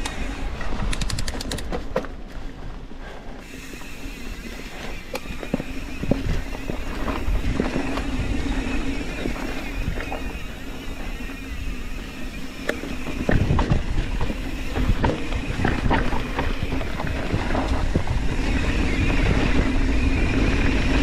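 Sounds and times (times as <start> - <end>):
quick run of ticks: 0.0 - 1.8
bike knocking and rattling: 0.0 - 21.0
bike tyre and wind noise: 0.0 - 21.0.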